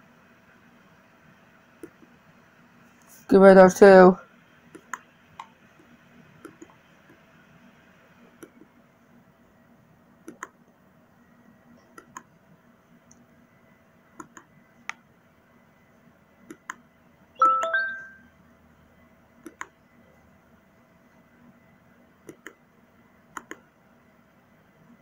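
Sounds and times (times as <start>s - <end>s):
faint steady hum: 0.0s - 25.0s
computer mouse clicks: 1.8s - 2.1s, 4.7s - 5.5s, 6.4s - 7.2s, 8.4s - 8.7s, 10.2s - 10.6s, 11.8s - 12.3s, 14.2s - 15.0s, 16.5s - 16.8s, 19.4s - 19.8s, 22.2s - 22.6s, 23.3s - 23.7s
short ringing chime: 17.4s - 18.2s.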